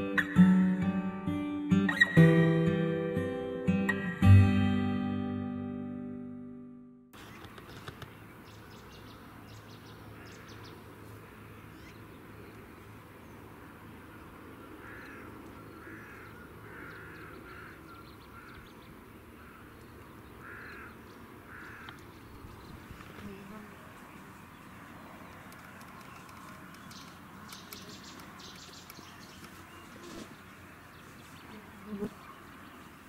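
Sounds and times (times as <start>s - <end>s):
low outdoor background: 0.0s - 33.0s
crow cawing: 14.8s - 18.7s, 19.4s - 19.7s, 20.4s - 22.0s.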